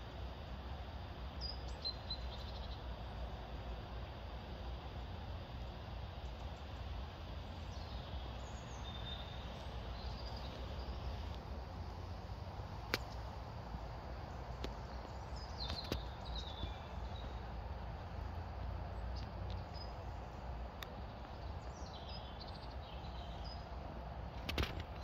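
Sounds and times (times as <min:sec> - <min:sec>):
sharp clicks: 0:12.8 - 0:13.2.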